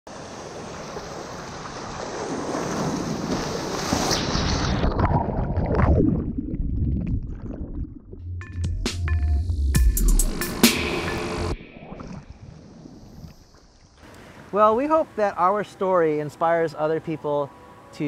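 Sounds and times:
surf water rushing and splashing: 0.1s - 5.2s.

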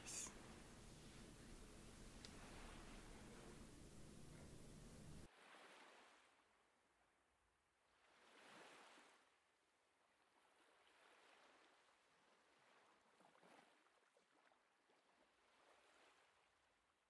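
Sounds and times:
faint ocean surf: 0.0s - 6.6s, 7.9s - 9.5s.

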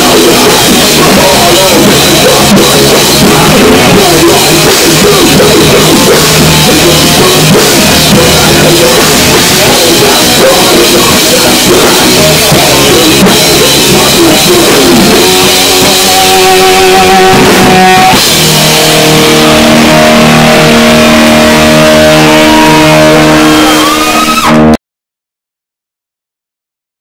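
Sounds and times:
live metal band playing: 0.0s - 24.8s
ringing guitar notes: 0.0s - 24.8s.

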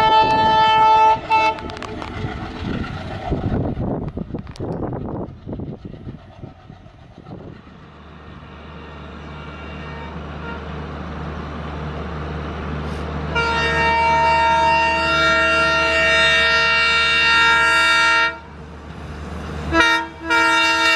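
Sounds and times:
multi-tone train air horn: 0.0s - 1.7s, 8.5s - 10.7s, 13.3s - 18.5s, 19.7s - 20.9s
train clattering over rails: 0.0s - 8.7s, 16.8s - 20.9s
diesel locomotive rumble: 0.0s - 20.9s.

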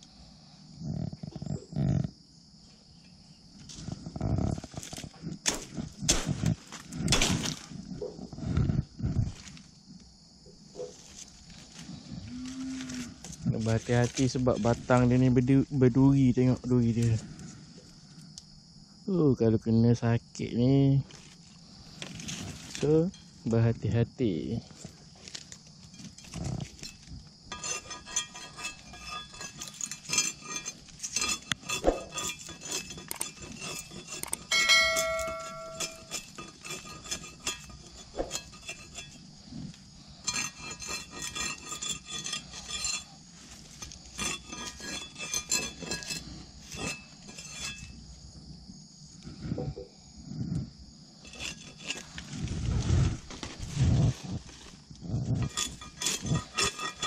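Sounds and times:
machete chopping stems: 4.9s - 7.7s
high-pitched background drone: 34.5s - 36.2s.

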